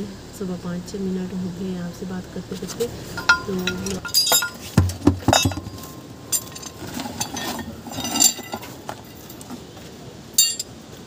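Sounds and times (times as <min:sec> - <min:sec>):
light clinks and knocks: 0:03.2 - 0:10.8.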